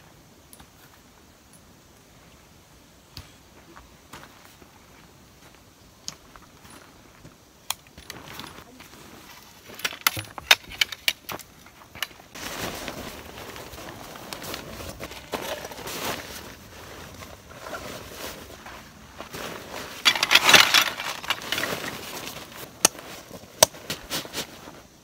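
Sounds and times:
steady rustling: 8.0s - 24.9s
small objects clicking and clinking: 20.0s - 21.8s.

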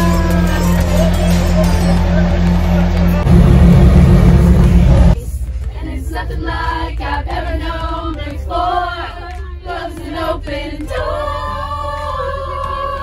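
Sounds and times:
bus engine low rumble: 0.0s - 13.0s
group singing a cappella: 5.7s - 13.0s.

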